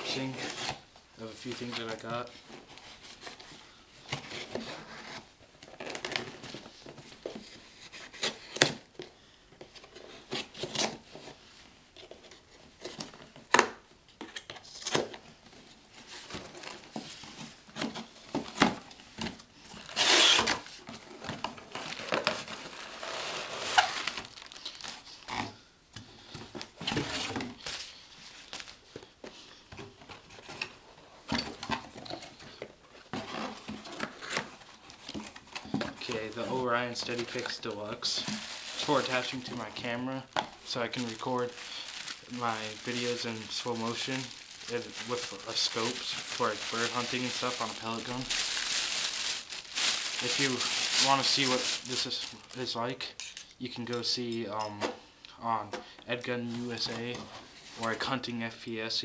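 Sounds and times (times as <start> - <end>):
packing tape tearing: 19.8 - 20.7, 40.7 - 52.6.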